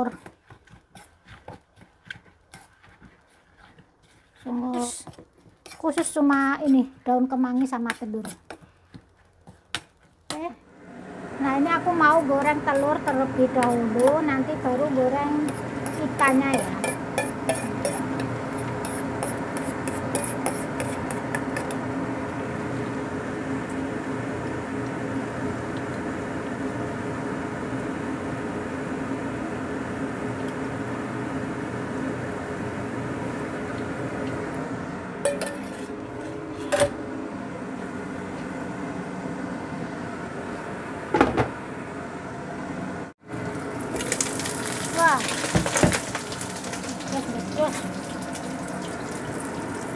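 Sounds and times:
egg sizzling in hot oil: 0:00.0 - 0:10.3, 0:43.4 - 0:49.9.

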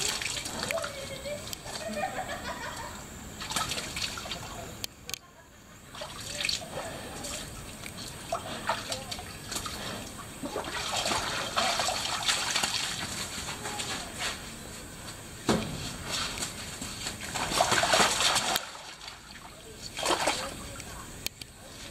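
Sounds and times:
water sloshing and splashing: 0:00.0 - 0:01.9, 0:03.4 - 0:04.8, 0:05.8 - 0:14.4, 0:15.5 - 0:20.9.

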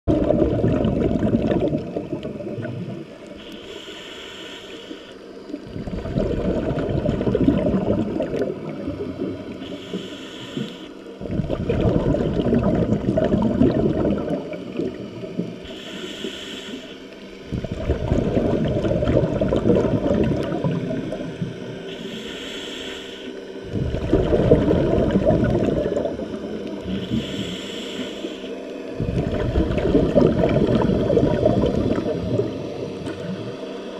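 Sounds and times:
exhaled bubbles rumbling: 0:00.0 - 0:03.4, 0:05.4 - 0:15.8, 0:17.4 - 0:21.9, 0:23.6 - 0:27.6, 0:28.9 - 0:33.9
regulator inhale hiss: 0:02.9 - 0:06.2, 0:07.9 - 0:11.3, 0:14.3 - 0:17.8, 0:20.9 - 0:24.1, 0:25.0 - 0:29.4.

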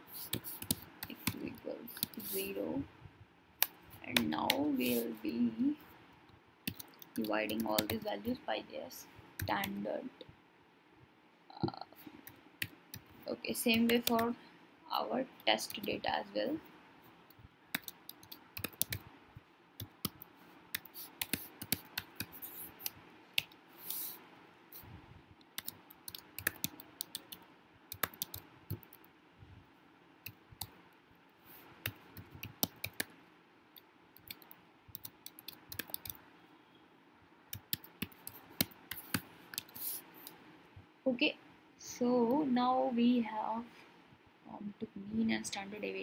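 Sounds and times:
computer keyboard typing: 0:00.2 - 0:02.7, 0:03.6 - 0:05.1, 0:06.6 - 0:08.2, 0:13.7 - 0:14.3, 0:17.7 - 0:19.1, 0:19.8 - 0:24.0, 0:25.6 - 0:29.0, 0:31.8 - 0:33.1, 0:34.2 - 0:36.2, 0:37.5 - 0:39.8.

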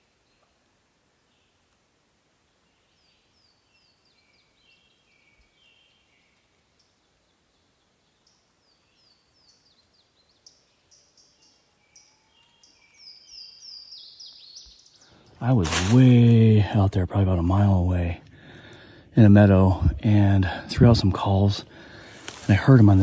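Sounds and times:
background hiss: 0:00.0 - 0:23.0
songbird chirps: 0:00.0 - 0:23.0.

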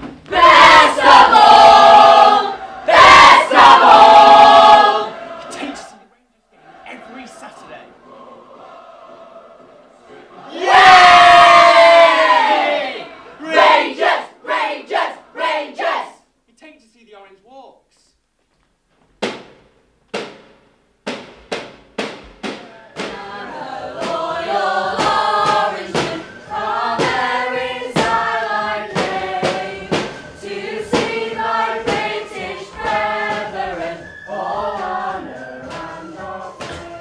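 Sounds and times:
young voices singing and chanting: 0:00.3 - 0:16.3, 0:22.8 - 0:37.0
loud marching drum strikes: 0:19.2 - 0:33.8
tin whistle high note: 0:34.0 - 0:34.8.

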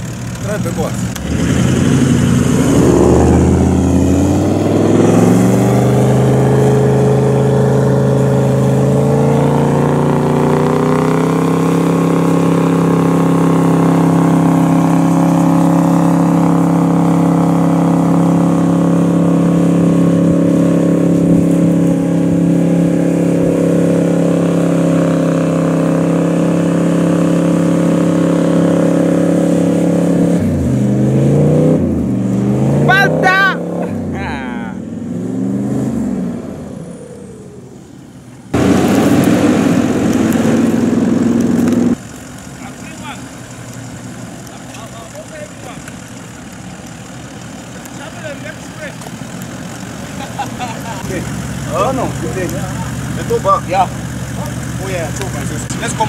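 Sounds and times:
engine revving hard: 0:00.0 - 0:37.8, 0:38.5 - 0:42.0.

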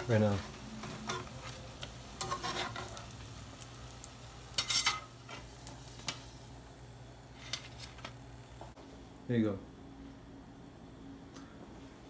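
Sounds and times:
food sizzling in hot oil: 0:00.0 - 0:08.8
metal spatula scraping and clicking: 0:02.2 - 0:03.0, 0:04.5 - 0:05.4.

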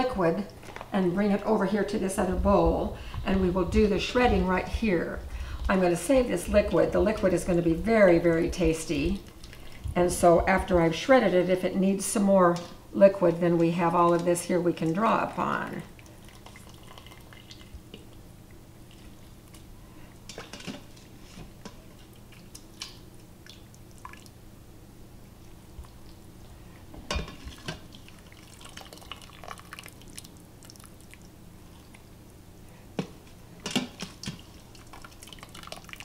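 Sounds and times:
liquid dripping and splashing: 0:16.0 - 0:18.2, 0:22.2 - 0:24.4, 0:27.4 - 0:32.0, 0:34.0 - 0:36.0.

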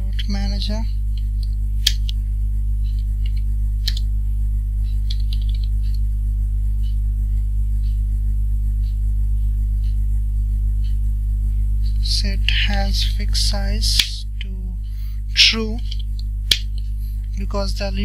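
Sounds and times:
low electrical hum: 0:00.0 - 0:18.0
sharp clicks: 0:02.9 - 0:04.1, 0:15.8 - 0:17.4.

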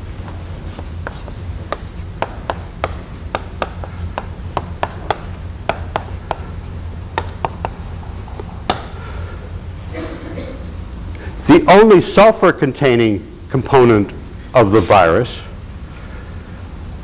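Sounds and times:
chalk tapping on blackboard: 0:00.2 - 0:08.9.

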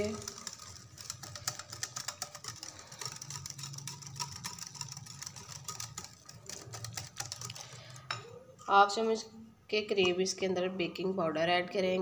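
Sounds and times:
whisk clicking against glass bowl: 0:00.0 - 0:08.8.

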